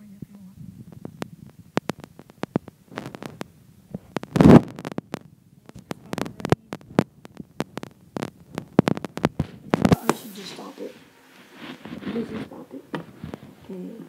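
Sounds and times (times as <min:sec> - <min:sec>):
sharp clicks and knocks: 0:01.0 - 0:10.0.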